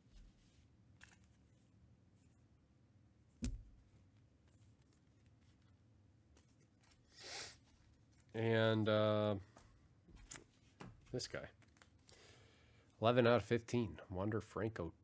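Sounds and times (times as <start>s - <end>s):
trading cards handling: 0.9s - 1.7s, 11.6s - 12.3s.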